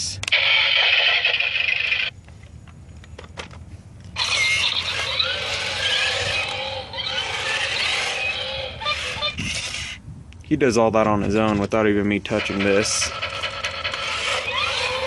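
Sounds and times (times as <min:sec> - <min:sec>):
toy electronic noise: 0:00.3 - 0:02.1, 0:04.2 - 0:10.0, 0:12.3 - 0:15.0
toy sound effects: 0:00.3 - 0:02.1, 0:04.2 - 0:09.9.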